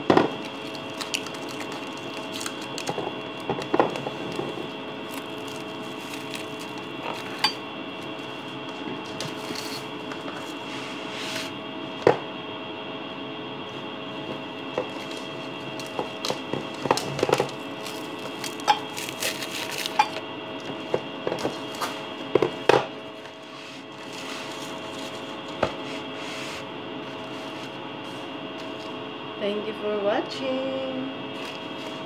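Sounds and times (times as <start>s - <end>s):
steady hum: 0.0s - 32.0s
cling film crinkling: 0.3s - 7.4s, 14.9s - 20.2s.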